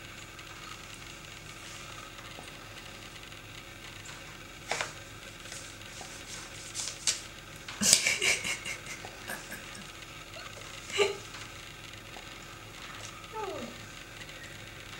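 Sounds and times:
kitten paws tapping and scrabbling: 4.0 - 11.6.

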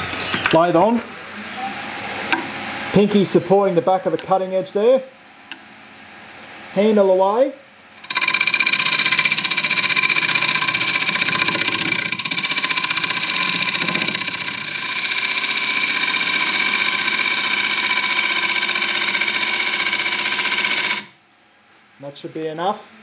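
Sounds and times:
gouge rasping wood: 8.0 - 21.1
lathe motor hum: 8.0 - 21.1.

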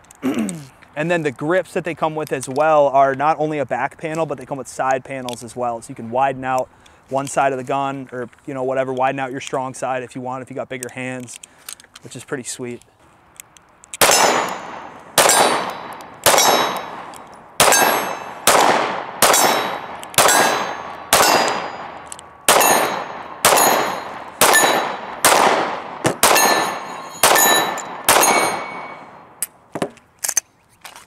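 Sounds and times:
pistol shots with ringing echo: 14.0 - 29.4.

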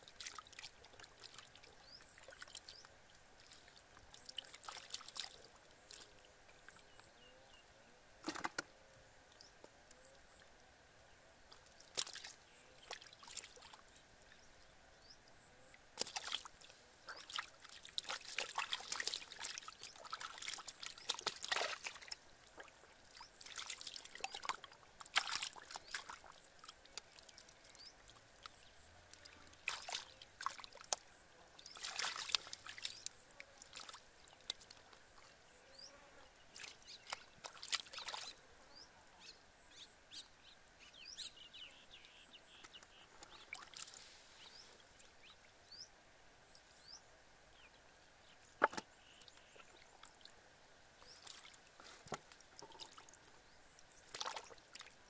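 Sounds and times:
hands splashing in muddy puddle: 23.4 - 26.2, 29.6 - 30.8, 31.7 - 33.0.

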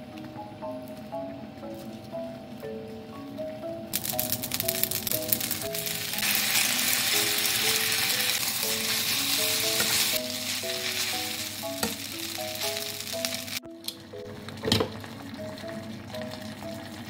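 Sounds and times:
spaghetti sizzling in frying pan: 4.0 - 13.6.

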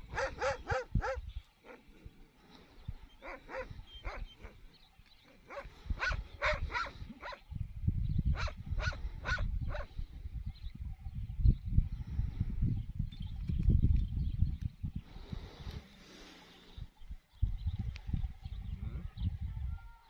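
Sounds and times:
large dog barking: 0.0 - 1.8, 3.2 - 4.3, 5.5 - 7.4, 8.3 - 9.9.

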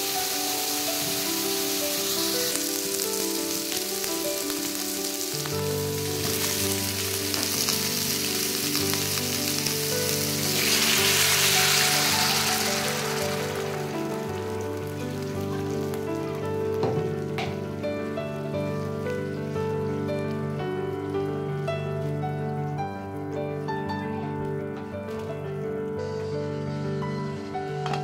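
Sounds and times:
water poured into hot pan hissing: 0.0 - 20.4
meat sizzling in a wok: 0.0 - 22.9
background music: 0.0 - 28.0.

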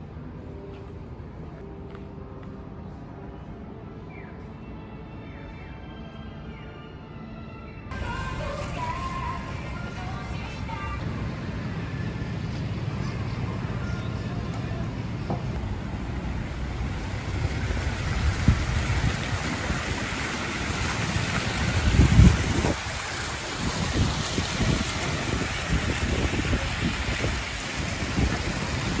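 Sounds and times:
fountain water splashing: 7.9 - 11.1, 15.4 - 29.0
wind buffeting microphone: 15.3 - 29.0.

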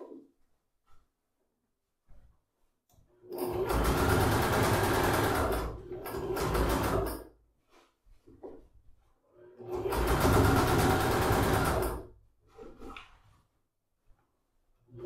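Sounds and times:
sewing machine stitching: 3.2 - 7.4, 9.4 - 12.2
faint handling sounds: 7.5 - 9.3.

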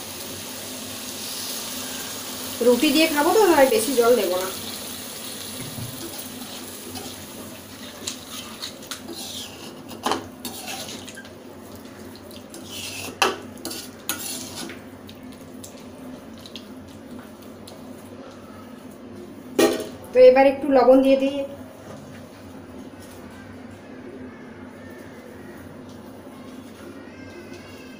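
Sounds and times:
metal spoon scraping a pan: 6.1 - 11.3, 12.5 - 14.8.

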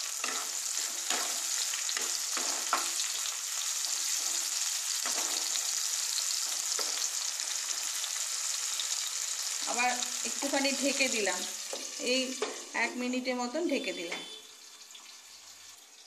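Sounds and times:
onions sizzling in oil: 0.0 - 16.0.

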